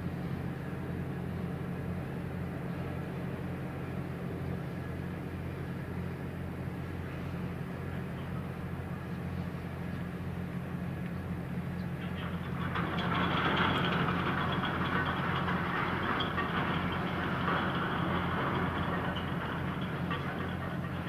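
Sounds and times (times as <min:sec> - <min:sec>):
ship engine hum: 0:00.0 - 0:21.0
anchor chain rattling: 0:12.2 - 0:21.0.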